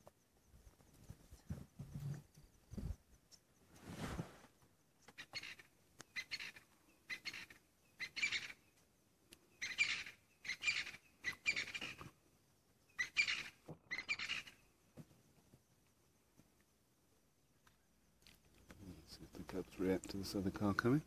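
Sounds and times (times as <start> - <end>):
bird calling in high bursts: 5.2 - 8.6, 9.6 - 12.0, 13.0 - 14.6.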